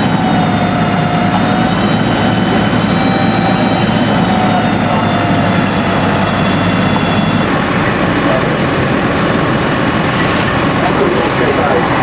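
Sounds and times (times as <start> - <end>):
fire engine pumps roaring: 0.0 - 12.0.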